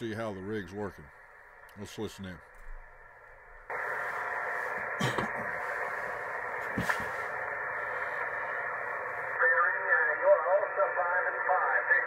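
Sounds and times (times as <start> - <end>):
radio static hiss: 0.0 - 12.0
distant voice through static: 3.7 - 12.0.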